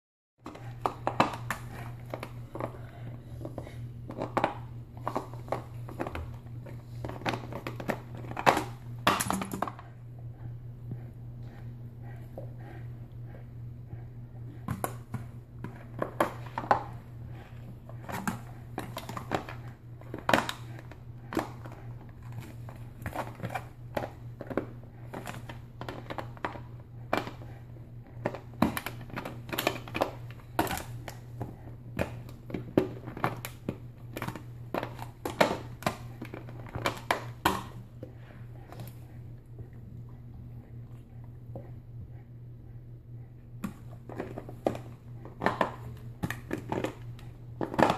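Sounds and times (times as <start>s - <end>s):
steady low hum: 0.4s - 47.9s
dog chewing plastic bottle: 15.6s - 37.8s.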